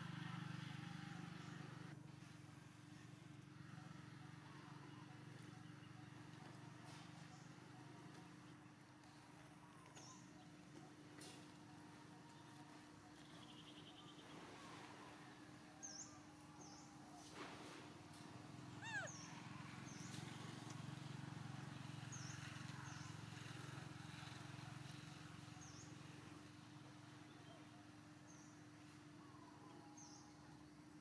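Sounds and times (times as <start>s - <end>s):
small birds chirping: 12.3s - 14.8s, 18.6s - 20.8s.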